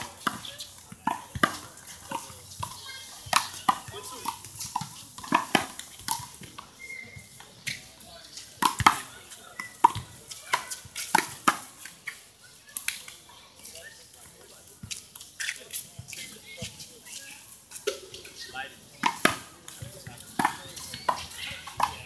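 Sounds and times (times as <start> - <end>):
ball bouncing on court: 0.1 - 7.8, 8.6 - 11.7.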